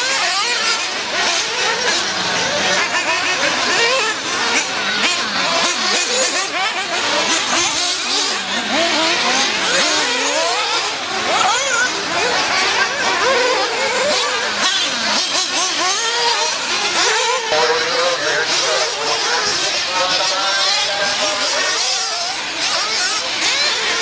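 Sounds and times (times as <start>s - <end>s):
model car engines screaming: 0.0s - 24.0s.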